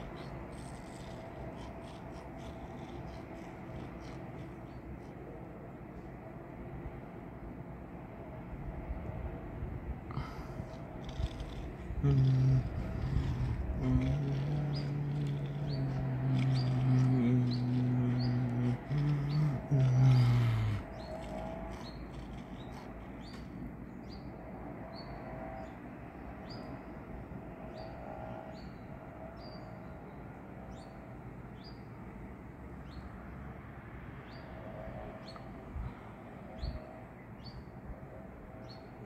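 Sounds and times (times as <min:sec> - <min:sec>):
small bird chirping: 0:00.0 - 0:05.2, 0:10.2 - 0:24.3
low background rumble: 0:00.0 - 0:24.2.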